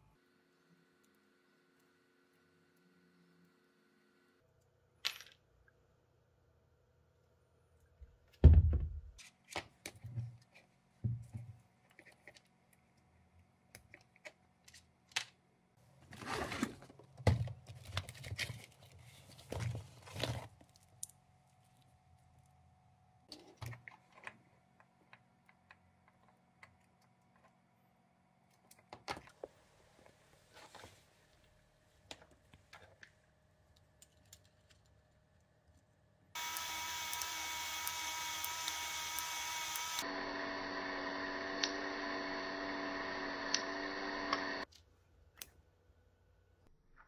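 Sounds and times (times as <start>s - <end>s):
small clicks of parts: 32.1s - 40.1s.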